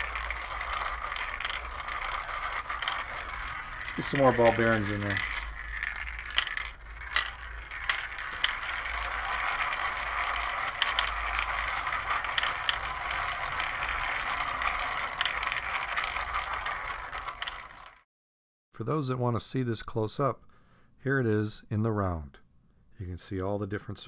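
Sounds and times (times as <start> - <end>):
ball bearings clicking: 0.0 - 18.0
plastic gear rattle: 0.0 - 18.0.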